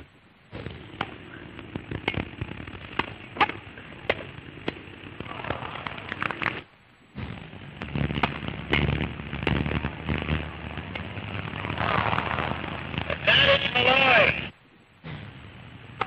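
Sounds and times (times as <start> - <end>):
film soundtrack hiss: 0.0 - 16.0
sharp clicks and pops: 0.6 - 13.8.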